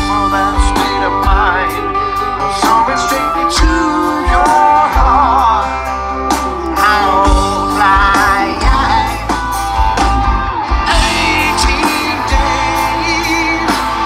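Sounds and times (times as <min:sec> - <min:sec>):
bass guitar: 0:00.0 - 0:14.0
electric guitars: 0:00.0 - 0:14.0
person singing: 0:00.0 - 0:14.0.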